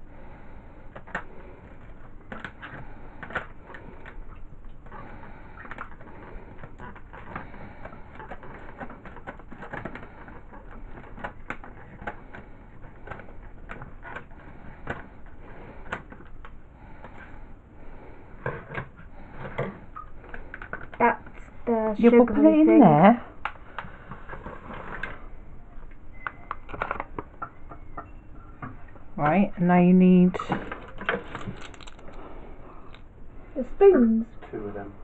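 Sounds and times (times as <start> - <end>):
packet crinkling: 30.8 - 32.2.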